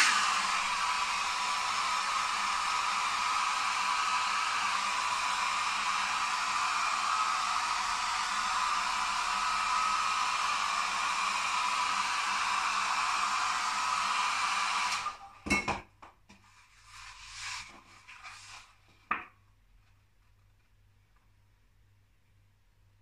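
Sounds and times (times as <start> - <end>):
hair dryer blowing: 0.0 - 15.4.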